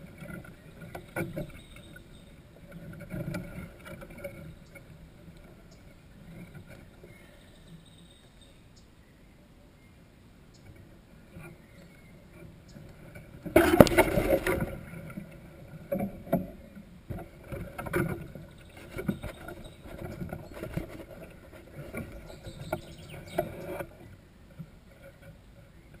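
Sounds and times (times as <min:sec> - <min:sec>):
knocks and rustles near microphone: 0:15.9 - 0:24.0.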